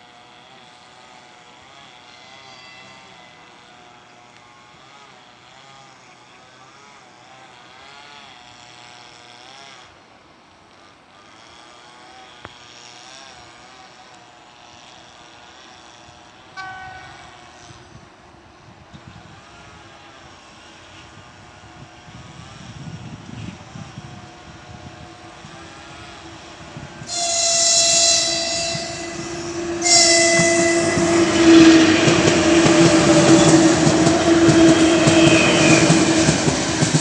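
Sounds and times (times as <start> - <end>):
electric locomotives humming: 19.0 - 37.0
locomotive horn: 25.4 - 37.0.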